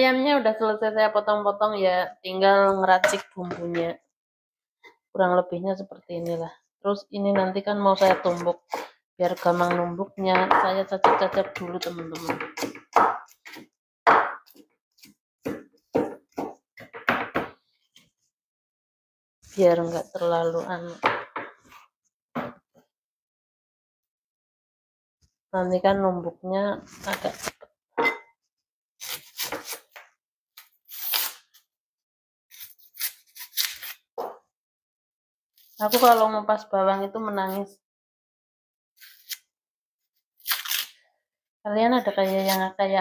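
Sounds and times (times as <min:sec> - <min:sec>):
cleaver chopping on wooden board: 0:09.7 - 0:14.6, 0:15.4 - 0:17.6
knife scraping onion skin: 0:26.9 - 0:27.6, 0:29.0 - 0:30.0, 0:30.6 - 0:31.7, 0:32.5 - 0:34.1, 0:35.6 - 0:36.3, 0:39.0 - 0:39.5, 0:40.4 - 0:41.0, 0:42.2 - 0:42.7.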